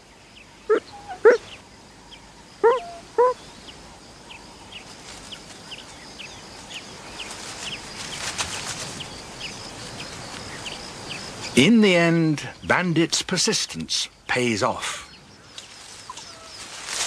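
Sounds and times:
sharp animal calls: 0.7s - 1.6s, 2.6s - 3.5s
scratchy rustle: 7.2s - 9.1s, 15.7s - 17.0s.

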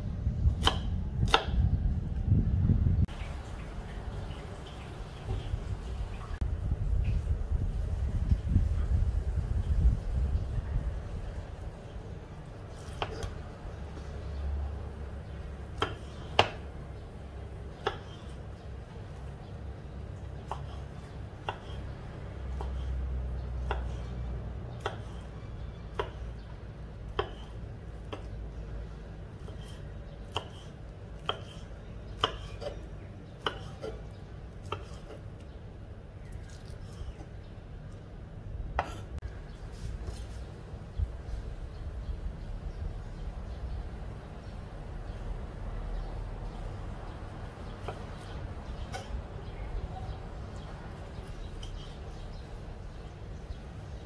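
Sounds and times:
low steady rumble: 0.0s - 12.6s
knife chopping on wooden block: 0.6s - 1.6s, 15.7s - 16.7s, 17.8s - 18.3s, 21.4s - 21.8s, 23.6s - 24.1s, 24.8s - 25.3s, 25.9s - 26.3s, 27.1s - 28.4s, 29.4s - 34.0s, 34.6s - 35.2s.

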